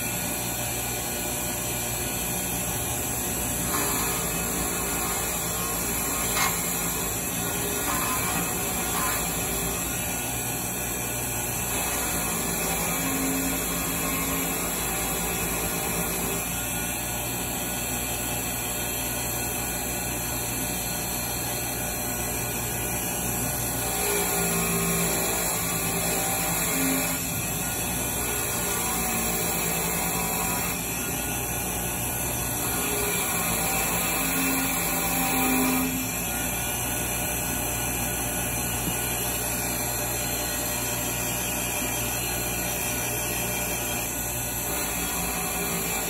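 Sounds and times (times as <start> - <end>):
bench grinder grinding metal: 0.0 - 46.0.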